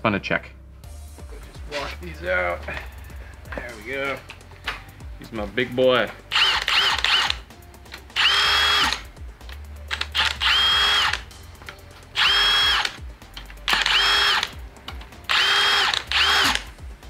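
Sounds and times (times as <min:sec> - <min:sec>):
cordless drill motor whine: 0:06.3 - 0:07.4, 0:08.2 - 0:09.0, 0:10.2 - 0:11.2, 0:12.2 - 0:13.0, 0:13.7 - 0:14.5, 0:15.3 - 0:16.7.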